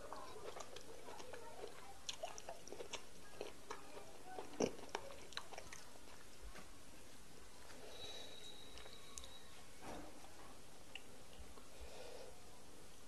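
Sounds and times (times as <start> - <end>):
wet mouth clicks and smacks chewing: 0.1 - 5.9.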